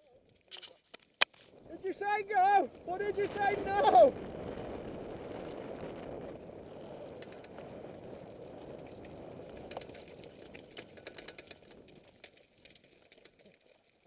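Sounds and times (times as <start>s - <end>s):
bike rolling on gravel: 1.5s - 14.0s
bike clicking and rattling over rock: 4.2s - 14.0s.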